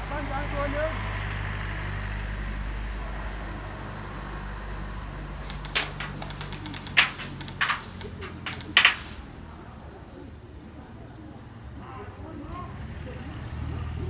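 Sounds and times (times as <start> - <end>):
airsoft guns firing: 5.5 - 9.3.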